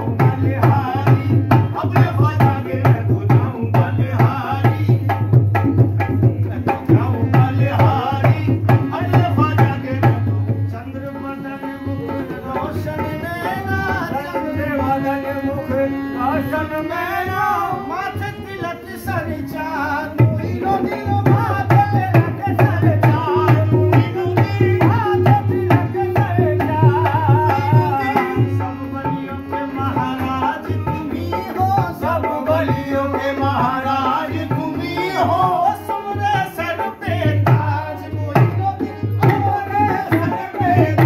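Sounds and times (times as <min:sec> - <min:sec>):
hand drum beats: 0:00.0 - 0:10.2, 0:37.1 - 0:41.0
harmonium notes: 0:00.0 - 0:41.0.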